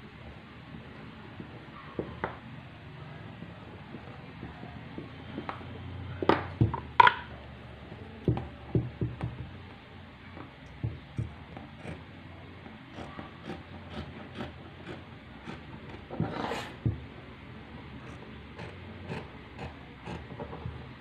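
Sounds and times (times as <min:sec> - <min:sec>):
knocking on wooden table: 0:06.3 - 0:07.3, 0:08.3 - 0:09.5, 0:10.8 - 0:11.4, 0:16.1 - 0:17.0.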